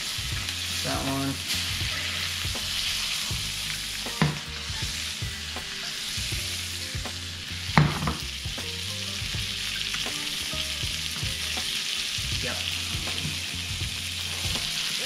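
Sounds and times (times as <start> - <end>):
fish fillets sizzling in a pan: 0.0 - 15.0
utensil knocking against pan: 7.8 - 8.3.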